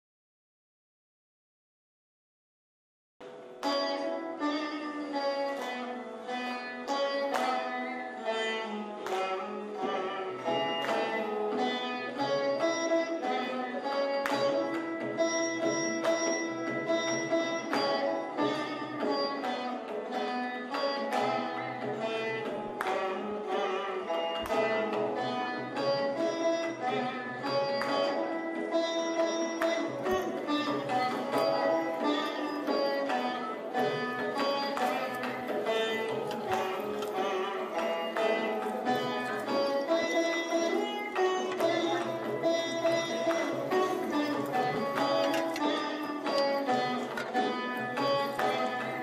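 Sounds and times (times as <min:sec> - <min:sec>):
plucked string melody: 0:03.2 - 0:49.0.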